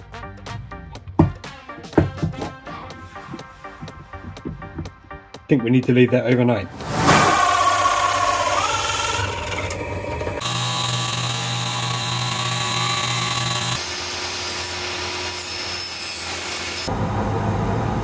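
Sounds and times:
bandsaw cutting wood: 6.9s - 16.9s
drill press drilling plywood: 7.1s - 16.9s.

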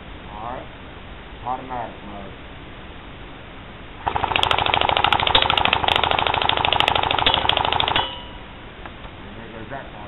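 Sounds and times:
airsoft gun full-auto burst: 4.0s - 8.2s.

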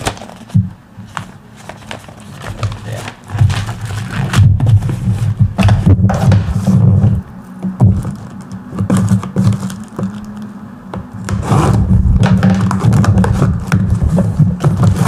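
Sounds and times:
hands scraping cardboard box: 11.1s - 15.0s.

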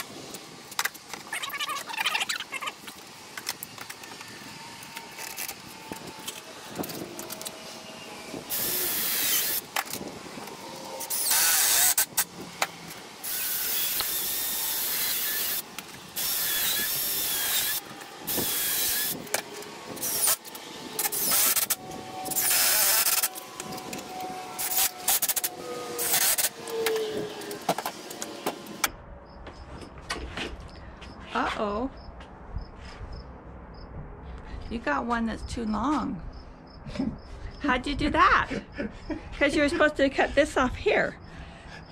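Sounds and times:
cordless drill drilling into wood: 8.5s - 9.9s, 11.0s - 12.3s, 13.2s - 15.6s, 16.2s - 19.3s, 19.9s - 27.6s.

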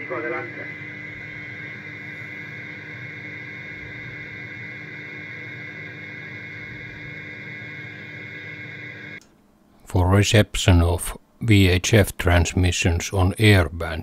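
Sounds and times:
radio hiss and hum: 0.0s - 9.2s.

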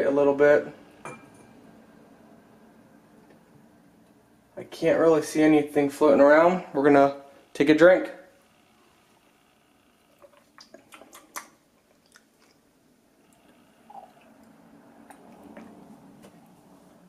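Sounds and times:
faint low hum: 0.0s - 17.0s
mouth clicks: 10.2s - 12.6s
person gulping water: 10.2s - 12.7s, 13.3s - 15.8s.

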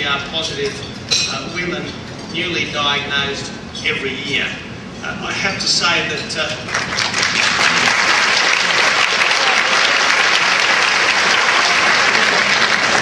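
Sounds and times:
audience applauding: 6.7s - 13.0s.

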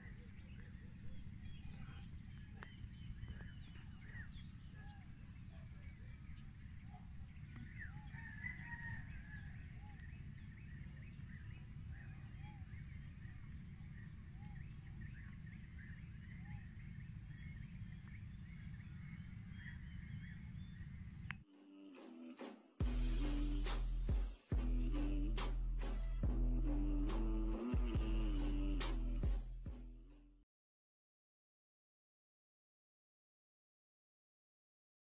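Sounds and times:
birds calling and chirping: 0.0s - 21.4s
low rumble: 22.8s - 30.2s.

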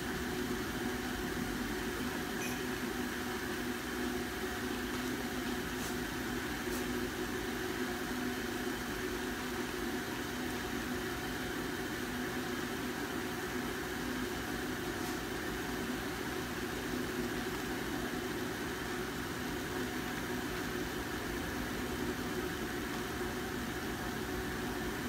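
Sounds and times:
appliance fan humming: 0.0s - 25.0s.

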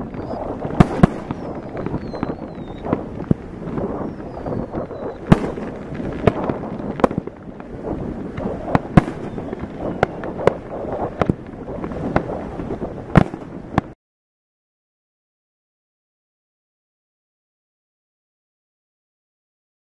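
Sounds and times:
fireworks crackling: 0.0s - 14.0s
sharp firework bangs: 0.0s - 14.0s.

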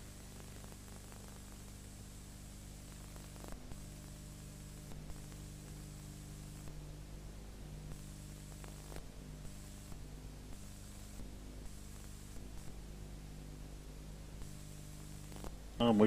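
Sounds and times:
electrical hum: 0.0s - 16.0s
even hiss: 15.2s - 16.0s.

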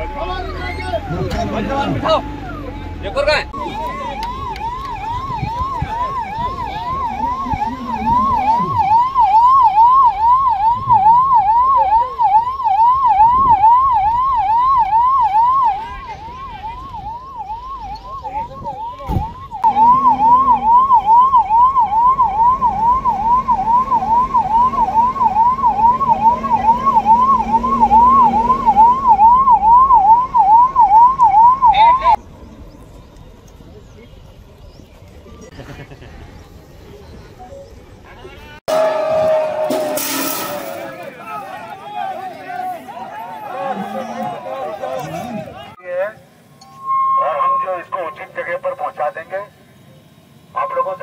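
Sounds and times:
siren in a fast yelp: 2.0s - 32.2s, 46.8s - 49.3s.

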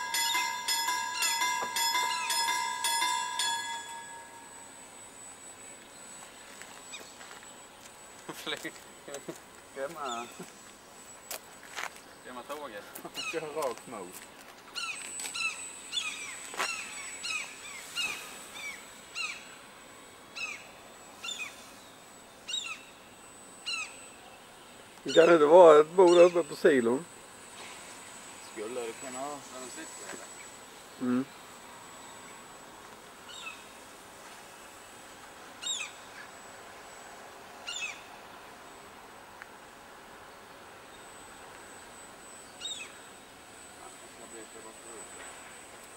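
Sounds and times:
gulls calling: 12.9s - 13.7s, 14.7s - 19.6s, 22.4s - 24.5s, 25.1s - 26.8s
gulls alarm calls: 13.1s - 13.6s, 22.5s - 22.9s, 23.6s - 24.0s, 26.0s - 26.5s.

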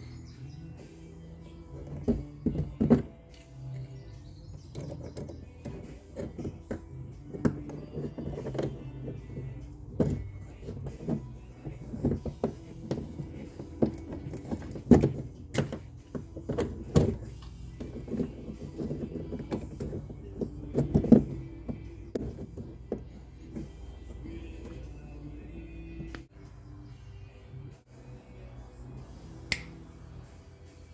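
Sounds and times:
background music: 0.0s - 30.9s
hands handling metal pipe fittings: 4.6s - 26.3s.

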